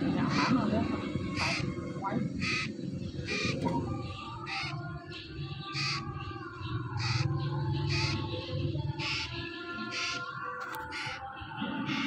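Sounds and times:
parrot chick squawking: 0.1s - 3.6s, 5.7s - 6.1s, 7.0s - 7.3s, 7.9s - 8.3s, 9.0s - 9.3s, 9.9s - 11.2s.

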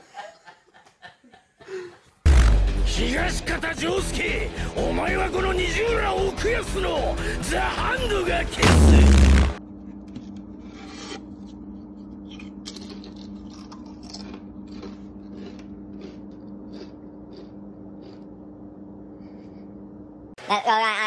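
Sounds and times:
steady low hum: 8.6s - 20.4s
potato chips rustling and crunching: 12.3s - 18.2s.

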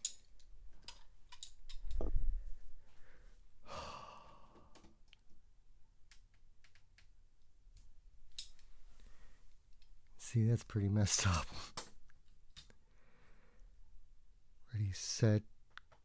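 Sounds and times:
small clicks of toy cars: 0.0s - 2.0s
breathy exhale: 3.0s - 4.7s, 12.9s - 13.6s.

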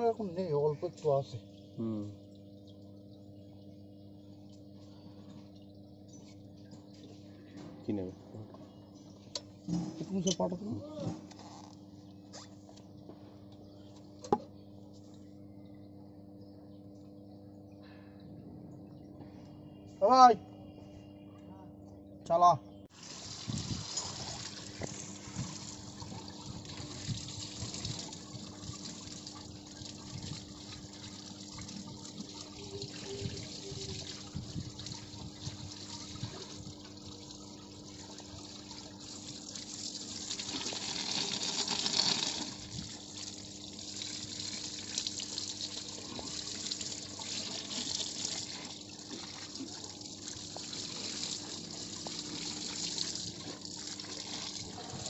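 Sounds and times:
steady hum: 0.0s - 40.8s
oil jet spraying from hose: 39.0s - 49.6s.

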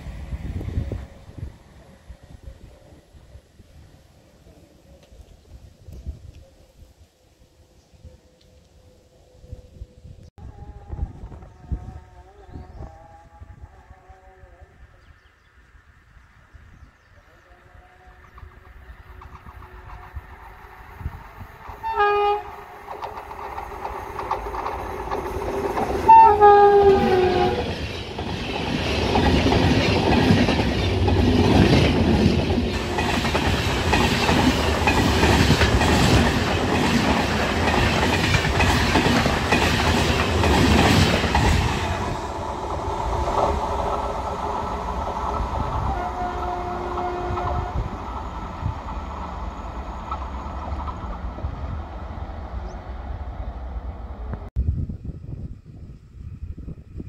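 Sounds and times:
train rumble passing: 0.0s - 5.7s, 17.5s - 57.0s
train horn: 10.4s - 15.0s, 17.4s - 20.8s, 21.8s - 22.8s, 26.0s - 27.9s, 45.6s - 48.0s
wheels clacking over rail joints: 22.7s - 45.6s.

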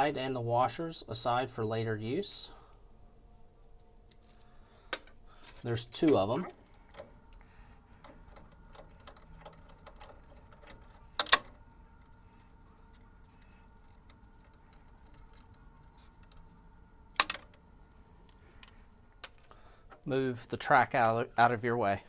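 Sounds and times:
metal parts clicking and rattling: 7.9s - 16.5s.

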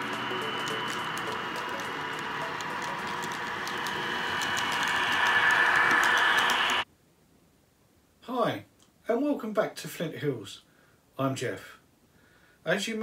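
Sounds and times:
model train motor whine: 0.0s - 6.8s
wheels clicking over track: 0.0s - 6.8s.

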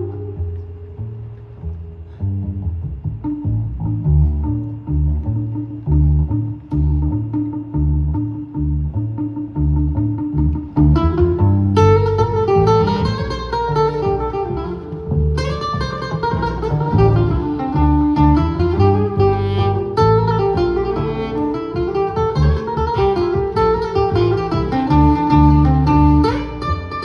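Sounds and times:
acoustic guitar plucked lines: 0.0s - 27.0s
walking double bass: 0.0s - 27.0s
gliding held melody notes: 11.0s - 27.0s.

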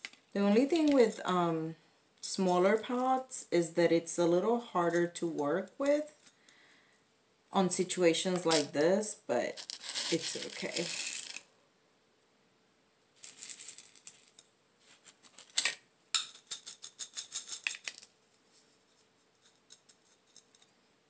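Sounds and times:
potting soil rattling and crackling: 0.0s - 1.4s, 9.5s - 11.5s, 13.2s - 18.1s.

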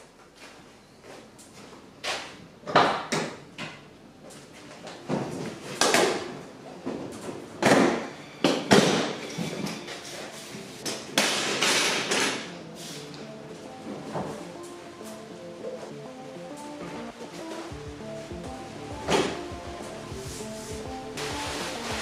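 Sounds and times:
metal folding table set down: 10.8s - 12.5s.

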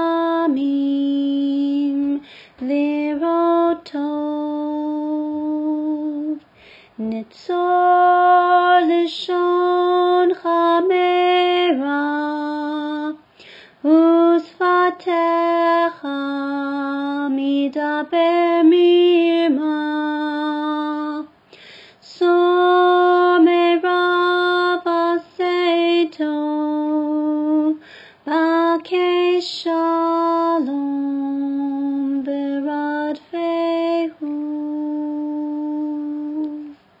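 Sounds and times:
woman singing alone: 0.0s - 21.4s, 22.0s - 36.8s
singer breathing: 2.2s - 2.6s, 6.5s - 7.0s, 13.3s - 13.8s, 21.4s - 22.0s, 27.8s - 28.2s.

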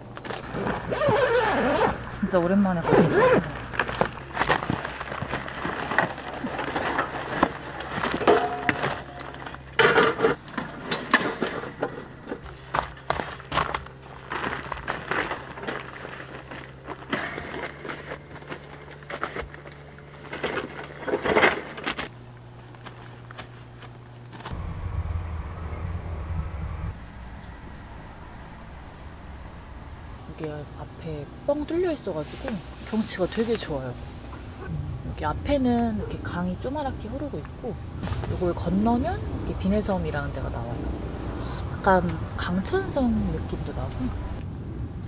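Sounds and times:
handling knocks and bumps: 0.0s - 24.6s
low rumble: 24.4s - 45.0s.

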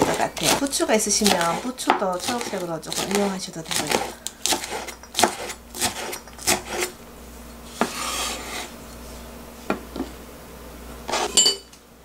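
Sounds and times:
knife scraping board: 0.0s - 7.0s, 7.6s - 9.0s, 11.1s - 11.5s.

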